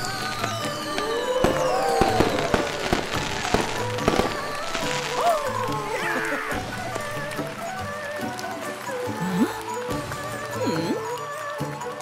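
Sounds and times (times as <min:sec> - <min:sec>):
firework whistles falling in pitch: 0:00.0 - 0:05.3
firework bangs and pops: 0:00.0 - 0:05.9
festive background music: 0:00.0 - 0:12.0.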